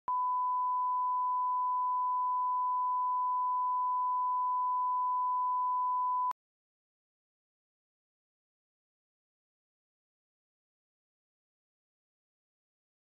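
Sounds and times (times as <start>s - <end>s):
steady test tone beep: 0.1s - 6.4s.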